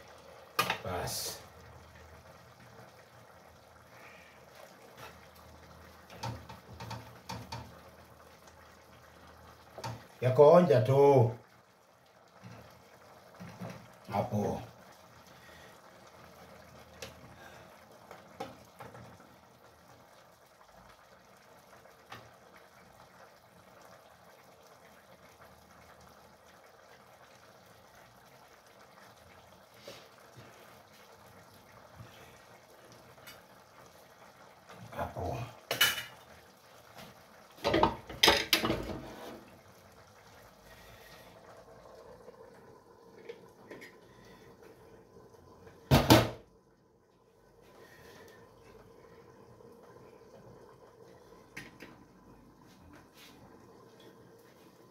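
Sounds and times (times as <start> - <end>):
faint steady hiss: 0.0 - 54.9
stew simmering: 0.0 - 54.9
cookware clattering: 37.6 - 39.1.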